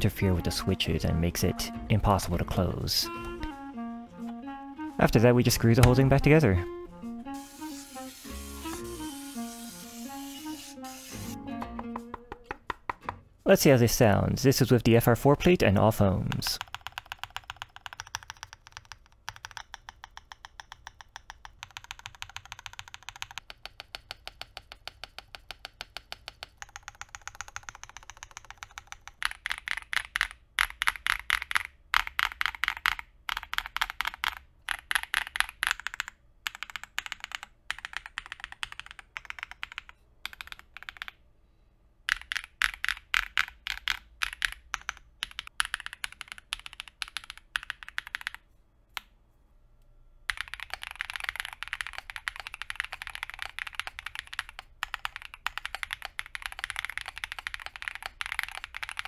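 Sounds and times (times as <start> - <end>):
mechanical keyboard typing: 16.0 - 41.2, 42.1 - 48.4, 50.3 - 59.0.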